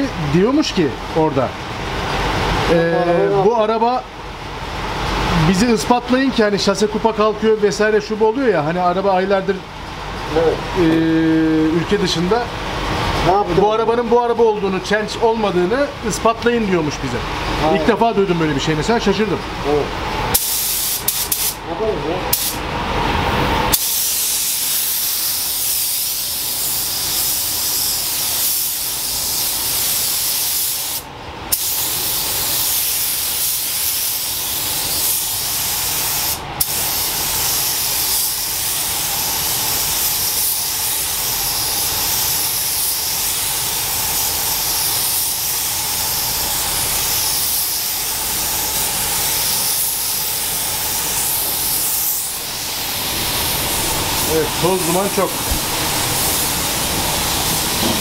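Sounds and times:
paint spray gun hissing: 20.3 - 21.6, 22.3 - 22.6, 23.7 - 58.0.

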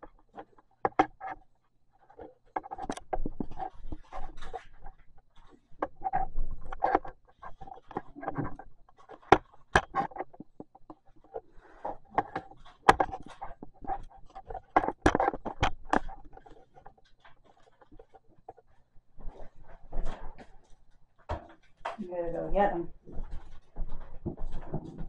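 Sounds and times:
objects knocking on wood: 12.0 - 16.4, 21.2 - 22.0.

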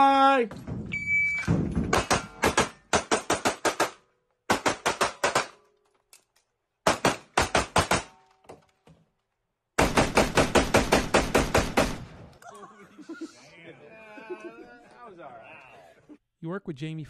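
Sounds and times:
rapid gunshots: 1.5 - 5.6, 6.8 - 8.1, 9.8 - 12.2.

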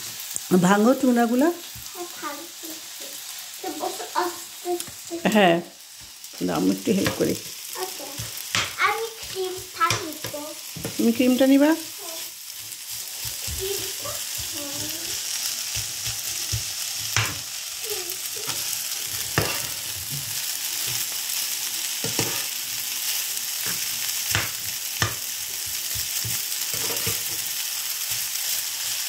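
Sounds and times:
food sizzling in a frying pan: 0.0 - 29.0
metal spatula scraping a pan: 19.2 - 19.8, 22.0 - 22.5, 26.7 - 27.4.

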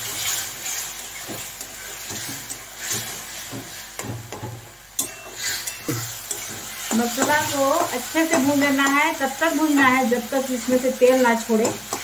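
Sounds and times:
metal spatula scraping and stirring: 0.0 - 4.2, 5.0 - 9.3
paste sizzling in a metal pan: 0.0 - 12.0
spatula clinking on pan: 5.0 - 9.1.

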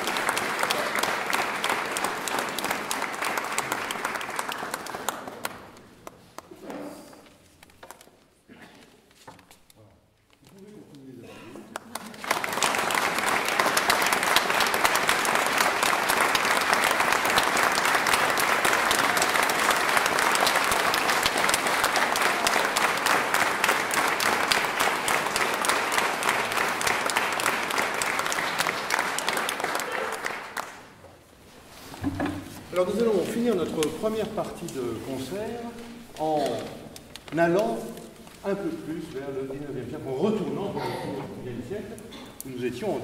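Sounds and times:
audience applauding: 0.0 - 6.2, 11.7 - 31.0.

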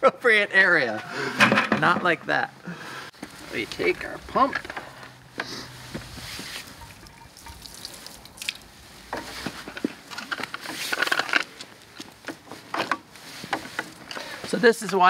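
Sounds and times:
small clicks and rustles: 4.4 - 15.0.

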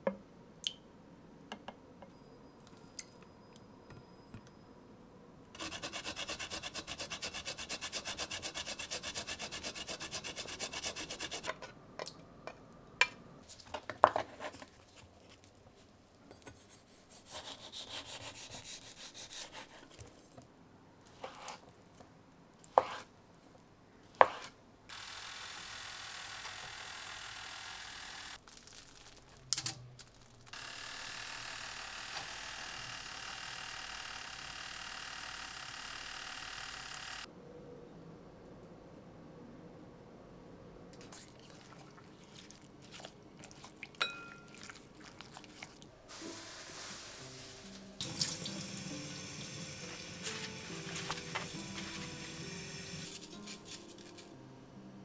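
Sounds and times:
toaster oven whirring: 48.0 - 53.5.

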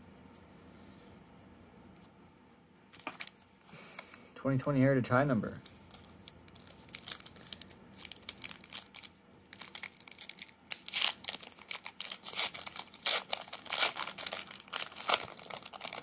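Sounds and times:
card pack wrapper crinkling: 5.6 - 16.0.

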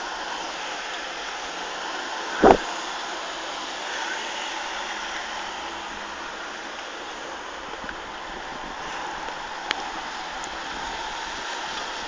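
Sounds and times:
steady rushing noise: 0.0 - 12.0
loud thump: 2.4 - 2.7.

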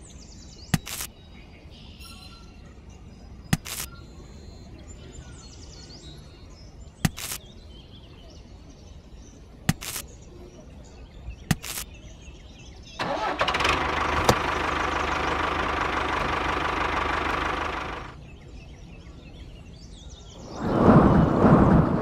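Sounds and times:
sharp clicks: 0.7 - 1.1, 3.5 - 4.0, 7.0 - 7.4, 9.7 - 10.1, 11.5 - 11.9
softer clicks: 0.8 - 1.1, 3.5 - 3.9, 11.5 - 11.9.

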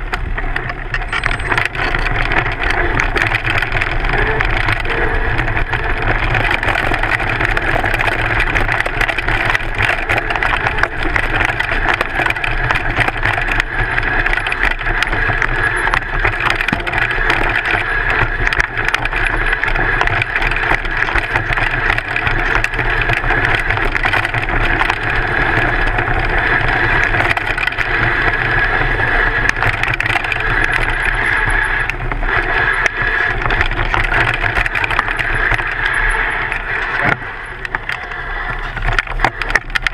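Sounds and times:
bike rattling over stones: 0.0 - 39.9.

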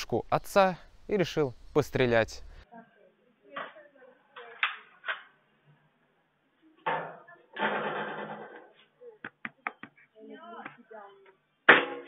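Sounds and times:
sharp knocks and clatters: 6.8 - 10.0.

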